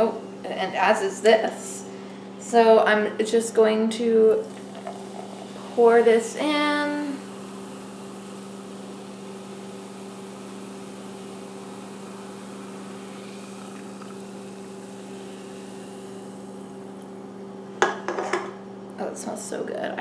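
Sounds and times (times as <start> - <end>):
low electrical hum: 0.0 - 20.0
soda pouring into glass: 4.3 - 17.0
fizzing hiss: 4.4 - 16.9.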